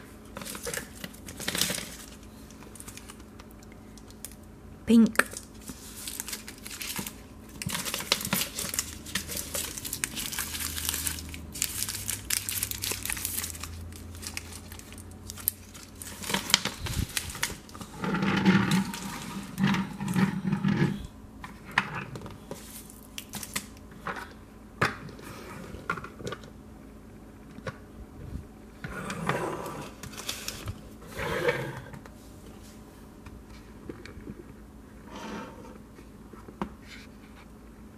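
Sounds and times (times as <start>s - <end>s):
plastic wrappers crinkling: 0.3s - 4.4s, 5.2s - 20.2s, 22.5s - 23.8s, 30.0s - 30.8s
plastic toy trucks on wooden floor: 16.1s - 22.3s.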